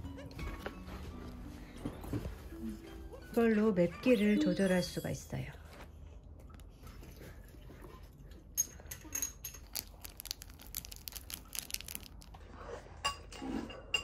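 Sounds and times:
sachet tearing and crinkling: 9.6 - 12.4.

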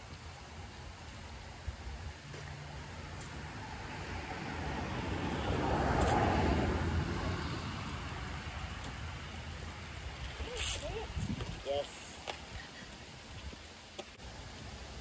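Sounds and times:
car driving past: 2.5 - 9.4.

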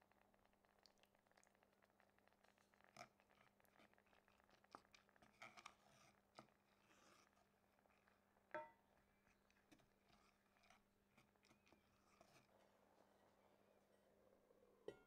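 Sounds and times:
faint steady hum: 0.0 - 15.0
wooden spatula stirring in pan: 2.4 - 12.7.

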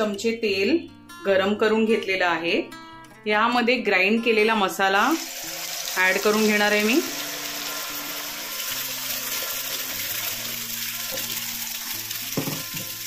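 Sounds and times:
paste sizzling in hot oil: 5.0 - 13.0.

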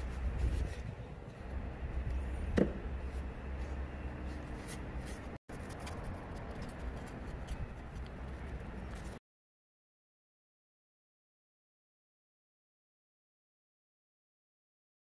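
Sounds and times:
steady low hum: 0.0 - 9.2
cloth rubbing on knife blade: 3.0 - 9.2.

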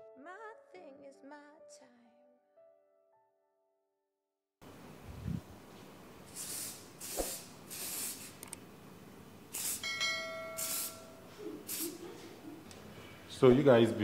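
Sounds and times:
hairspray can spraying: 6.3 - 8.5, 9.5 - 9.9, 10.6 - 12.1.

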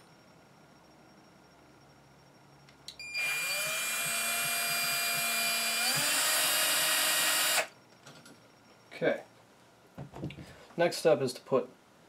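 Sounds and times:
cordless drill whining: 3.2 - 7.7.

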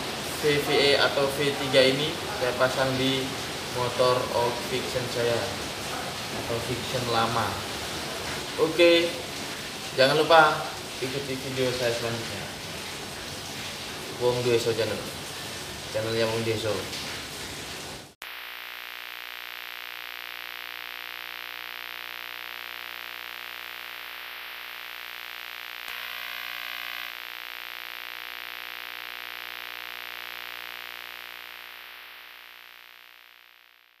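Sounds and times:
static hiss: 0.0 - 34.0
distortion burst: 18.2 - 34.0.

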